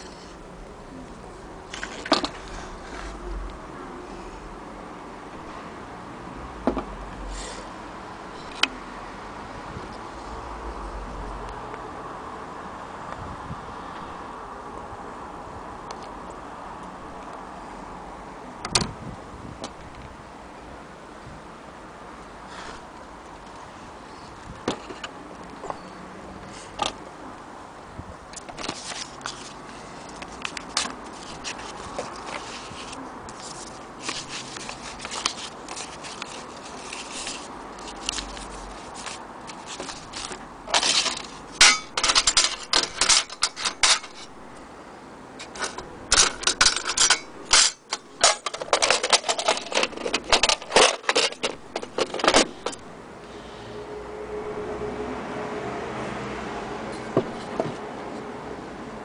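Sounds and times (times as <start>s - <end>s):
metal attachments clinking in tin: 28.4s - 44.4s, 45.4s - 52.8s.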